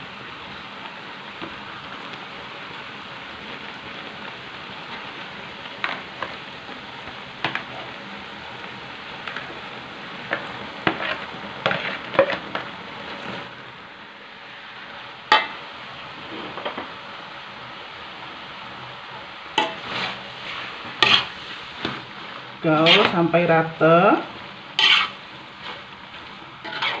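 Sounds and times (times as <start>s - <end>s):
food sizzling in a wok: 0.0s - 27.0s
metal spatula scraping pan: 10.8s - 12.6s, 19.6s - 21.4s, 22.7s - 23.2s, 24.8s - 25.9s, 26.6s - 27.0s.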